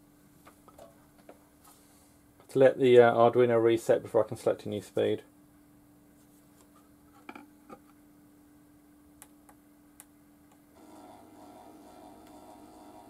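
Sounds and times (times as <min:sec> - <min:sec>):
turntable motor humming: 0:10.8 - 0:13.0.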